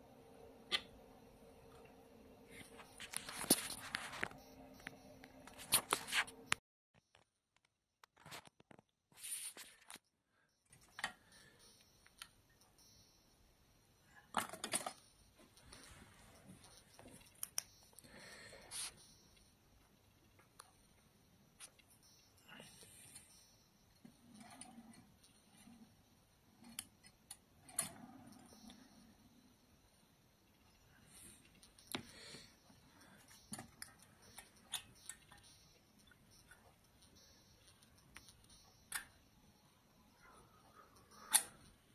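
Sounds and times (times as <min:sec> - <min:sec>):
cans and small parts clicking: 0:14.2 - 0:16.0.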